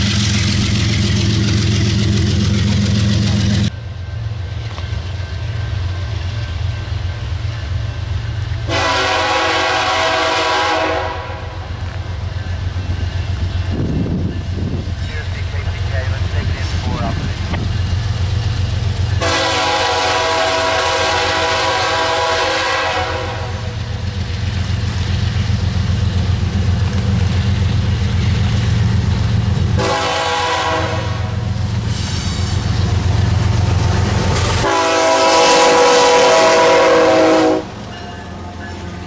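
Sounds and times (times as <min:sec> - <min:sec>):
diesel engine throbbing: 0:00.0 - 0:39.0
locomotive air horn blasts: 0:08.6 - 0:11.7, 0:19.2 - 0:23.8, 0:29.8 - 0:31.5, 0:34.6 - 0:37.8.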